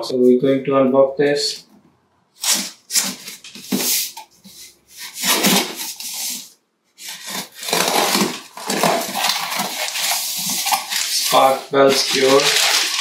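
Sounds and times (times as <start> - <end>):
cardboard flaps rustling: 2.4 - 6.4, 7.0 - 13.0
packing tape scraped and sliced: 2.4 - 13.0.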